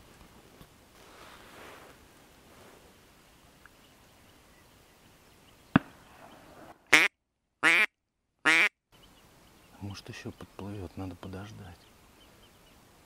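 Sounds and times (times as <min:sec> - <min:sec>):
duck call quacks: 0:06.9 - 0:08.7.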